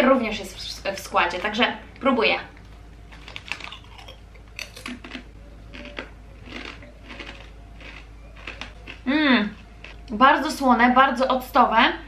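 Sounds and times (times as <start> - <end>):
potato chip crunching: 3.1 - 10.1.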